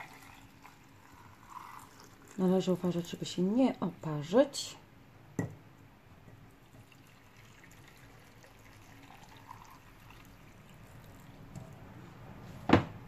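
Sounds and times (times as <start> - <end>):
liquid trickling into glass jar: 0.0 - 3.4, 6.3 - 11.7.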